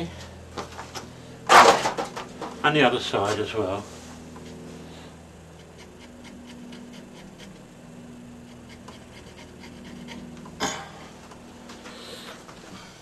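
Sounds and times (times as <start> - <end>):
steady low hum: 0.0 - 13.0
pencil scratching on plywood: 5.5 - 7.7, 8.4 - 10.6.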